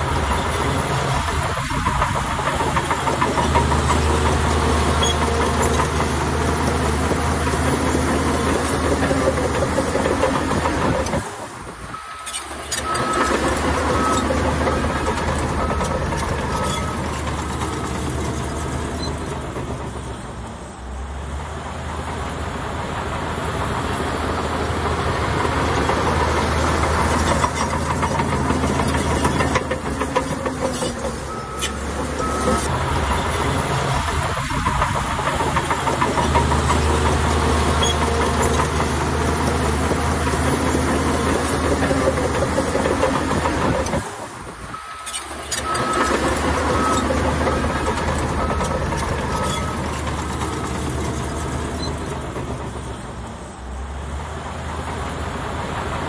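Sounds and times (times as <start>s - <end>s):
diesel engine running: 0.0s - 56.0s
reversing alarm beeping: 11.9s - 18.0s, 31.2s - 32.7s, 44.7s - 50.8s.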